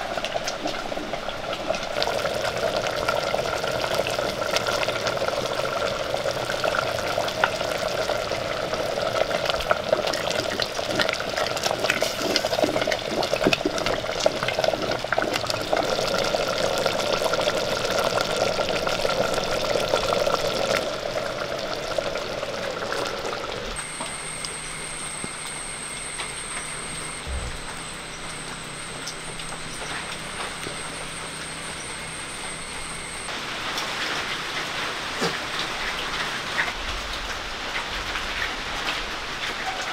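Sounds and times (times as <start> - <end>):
thick porridge bubbling in pot: 0.0 - 39.9
faint high whine: 23.7 - 34.1.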